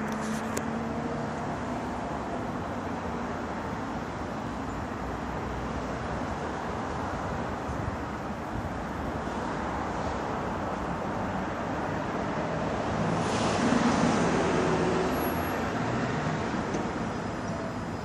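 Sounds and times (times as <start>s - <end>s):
street traffic: 0.0s - 18.0s
vehicle passing close: 12.1s - 17.1s.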